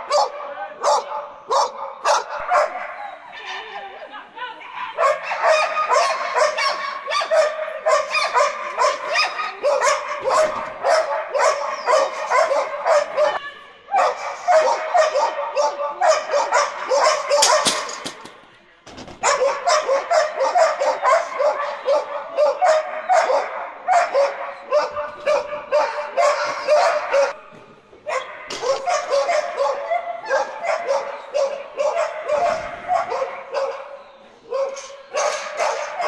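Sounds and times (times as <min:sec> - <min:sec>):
dog barking in excited yips: 0:00.0 - 0:03.2, 0:04.7 - 0:18.0, 0:19.2 - 0:27.4, 0:28.1 - 0:36.0.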